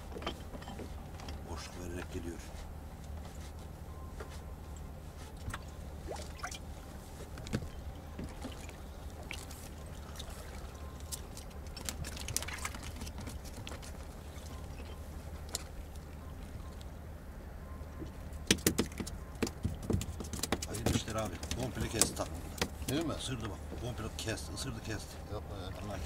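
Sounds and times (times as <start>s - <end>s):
steady low hum: 0.0s - 26.0s
water trickling: 5.5s - 6.8s, 7.7s - 16.9s
fishing tackle clicks and rustles: 10.8s - 16.9s.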